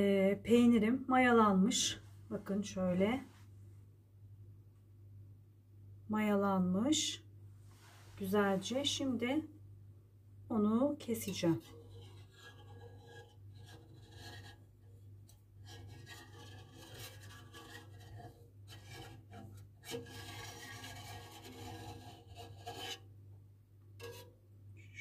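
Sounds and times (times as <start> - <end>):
knife scraping metal pot: 11.2 - 23.1, 24.0 - 24.4.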